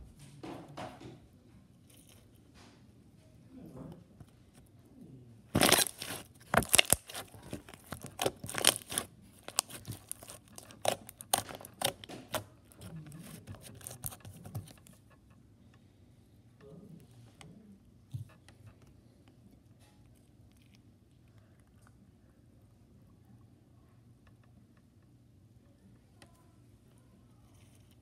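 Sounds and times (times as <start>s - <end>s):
crunchy slime crackling and popping: 5.5s - 14.2s.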